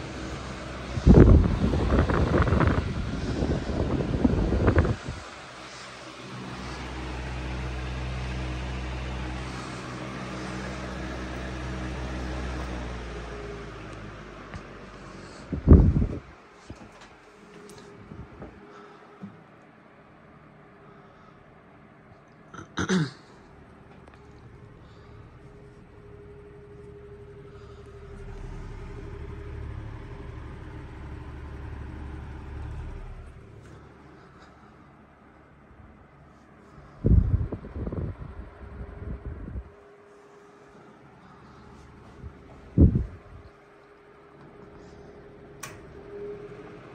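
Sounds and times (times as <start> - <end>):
air rushing from fan blades: 0.0 - 21.8, 23.5 - 46.9
fan motor hum: 0.0 - 46.9
wind buffeting microphone: 0.8 - 5.4, 15.5 - 16.4, 37.0 - 39.8, 42.2 - 43.5.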